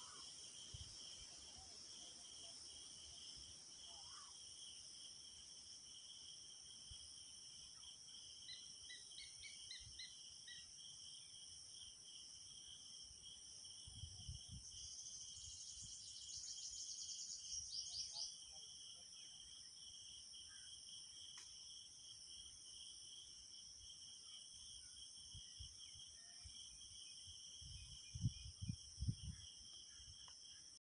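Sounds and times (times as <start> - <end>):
insects trilling: 0.0 - 6.4
bird chirps: 14.8 - 18.4.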